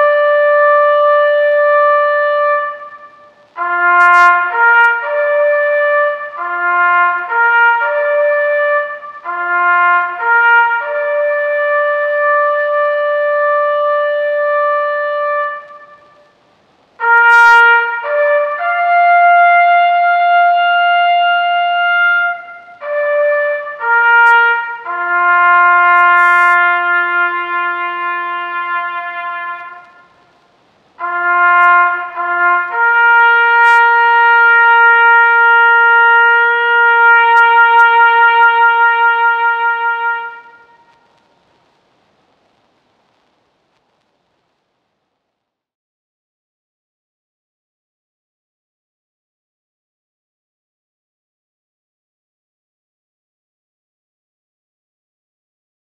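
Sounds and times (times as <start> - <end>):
solo brass bugle call: 0.0 - 16.4, 17.0 - 41.3.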